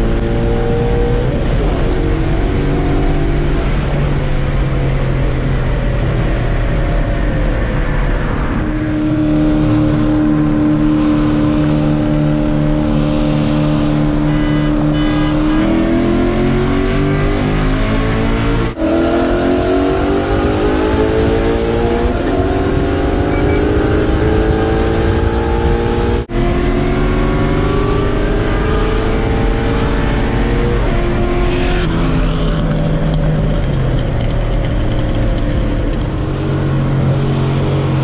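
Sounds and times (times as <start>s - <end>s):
engine revving at full throttle: 0.0s - 5.4s, 8.4s - 33.3s.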